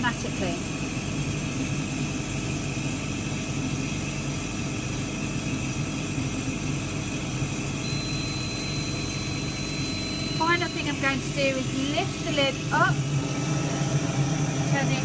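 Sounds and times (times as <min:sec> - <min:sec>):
laser cutter humming: 0:00.0 - 0:15.0
high-pitched electronic bleep: 0:07.8 - 0:11.1.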